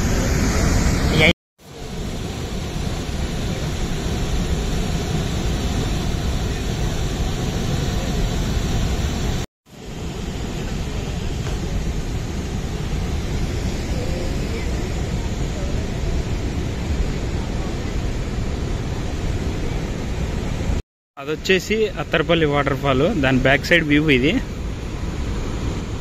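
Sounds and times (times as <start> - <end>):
waterfall roaring: 0.0 - 20.8.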